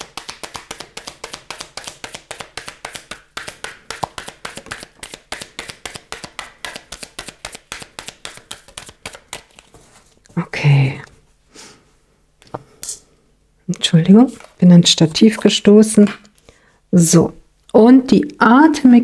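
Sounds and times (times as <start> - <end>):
cards being shuffled by hand: 0.0 - 10.4, 14.3 - 14.6.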